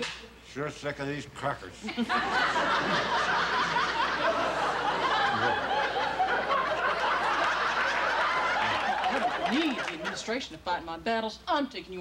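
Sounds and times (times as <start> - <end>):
crowd laughing: 1.8 - 10.3.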